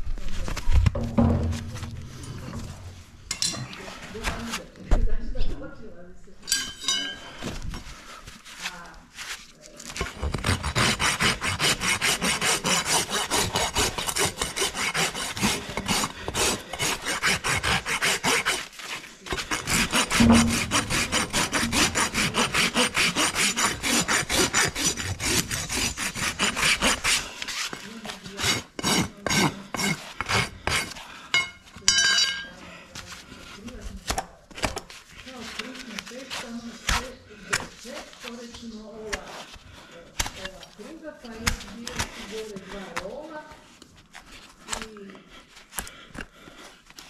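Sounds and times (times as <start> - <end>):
hoof rasp scraping: 7.0 - 31.8.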